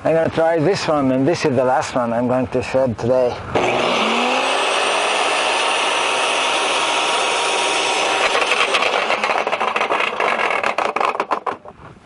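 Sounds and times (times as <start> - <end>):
garden shredder running: 3.6 - 11.6.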